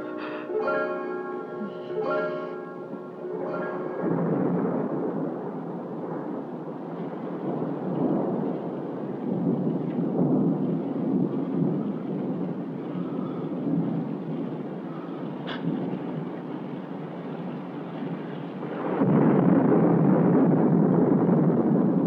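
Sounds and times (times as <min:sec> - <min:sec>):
plucked-string music: 0:00.0 - 0:04.0
low rumbling noise: 0:00.0 - 0:22.0.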